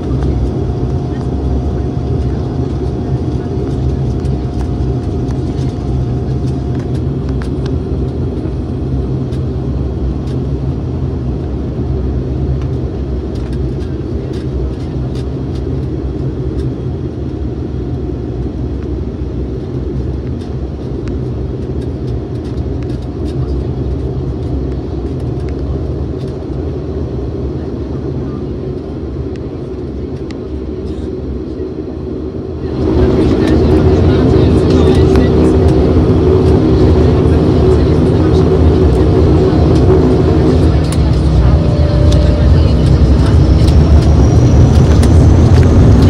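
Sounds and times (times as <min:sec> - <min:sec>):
turboprop engine drone in cabin: 0:00.0 - 0:46.0.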